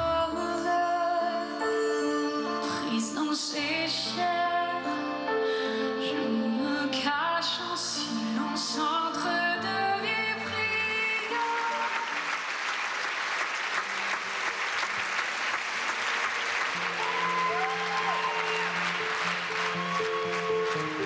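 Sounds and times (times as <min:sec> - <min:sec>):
soft sustained music: 0:00.0 - 0:12.2, 0:16.2 - 0:21.0
live song with accompaniment: 0:00.0 - 0:12.6, 0:13.8 - 0:21.0
audience applause: 0:11.4 - 0:21.0.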